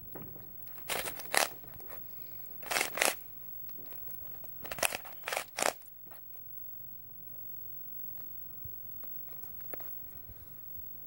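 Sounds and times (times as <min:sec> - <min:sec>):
plastic puzzle cube clacking: 0:00.8 - 0:01.6, 0:02.6 - 0:03.2, 0:04.6 - 0:05.8.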